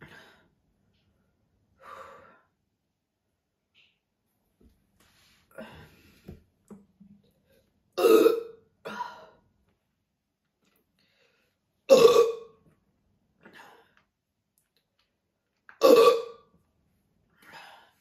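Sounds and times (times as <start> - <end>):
woman belching: 8.0 - 8.5, 11.9 - 12.5, 15.8 - 16.4.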